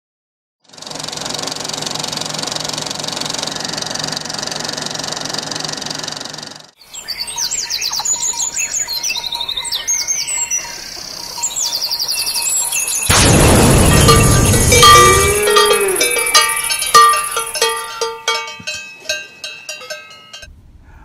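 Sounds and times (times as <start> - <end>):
songbirds chirping and trilling: 6.8 - 17.7.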